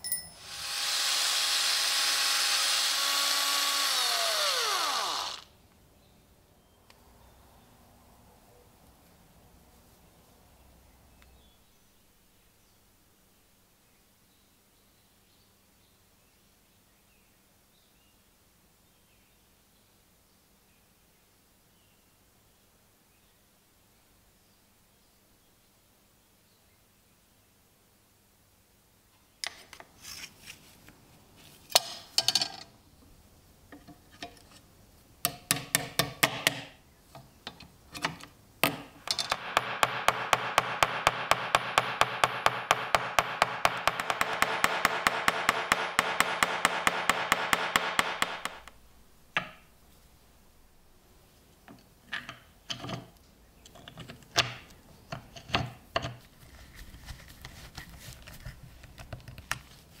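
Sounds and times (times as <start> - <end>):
screwdriver driving screw into wood: 0.4 - 5.5, 38.6 - 48.8
small hammer tapping rivets: 35.2 - 36.8, 38.6 - 48.8.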